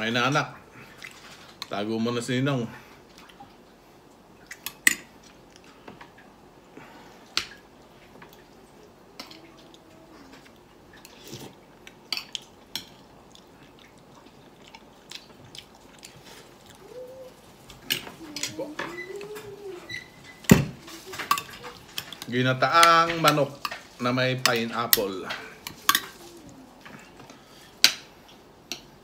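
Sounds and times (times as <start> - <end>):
quiet chewing: 3.1 - 22.4.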